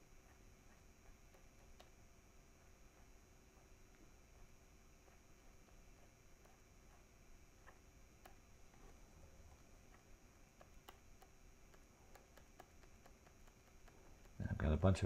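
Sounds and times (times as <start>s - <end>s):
stylus tapping on drawing tablet: 9.9s - 14.4s.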